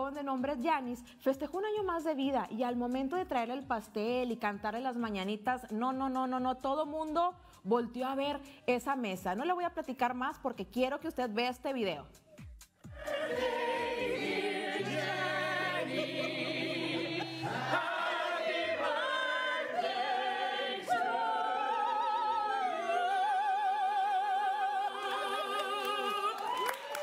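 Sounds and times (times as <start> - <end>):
operatic voices singing together: 12.9 - 27.0.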